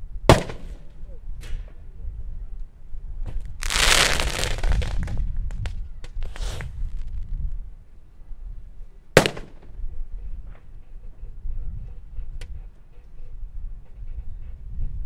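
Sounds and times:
pyrotechnic pop: 0.3 - 0.7, 3.6 - 5.2, 9.2 - 9.5
sharp cracks: 3.6 - 5.7, 9.2 - 9.6.

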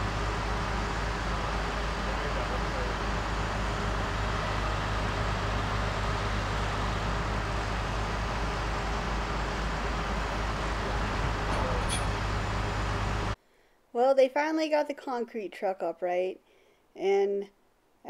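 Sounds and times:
diesel truck engines droning: 0.0 - 13.4.

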